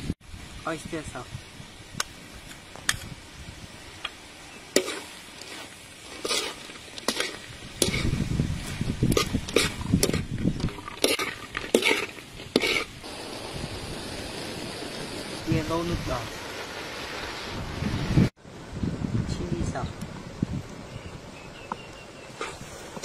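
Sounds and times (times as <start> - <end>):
light sizzle: 0.0 - 18.3
spatula scraping griddle: 4.7 - 13.0.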